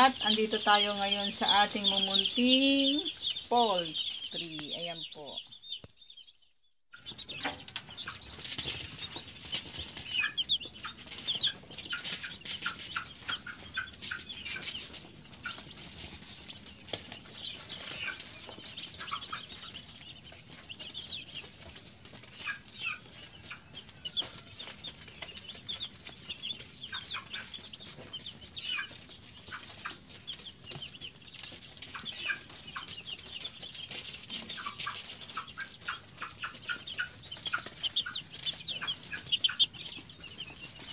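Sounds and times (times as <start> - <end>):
steady high-pitched hiss: 0.0 - 5.8
chicks peeping: 0.0 - 40.9.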